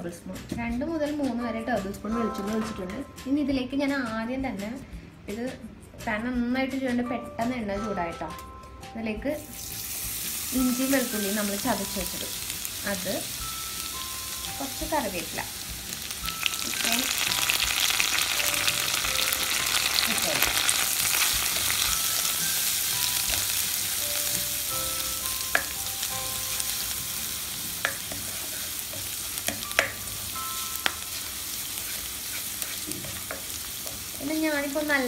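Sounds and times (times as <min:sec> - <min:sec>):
oil sizzling in a pan: 0:09.4 - 0:35.0
spatula tapping a pan: 0:25.2 - 0:27.1, 0:27.7 - 0:34.2.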